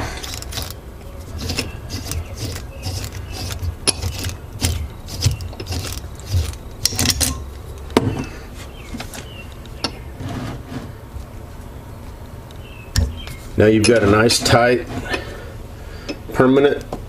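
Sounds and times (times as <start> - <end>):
metallic tool clicks and clinks: 0.2 - 0.8.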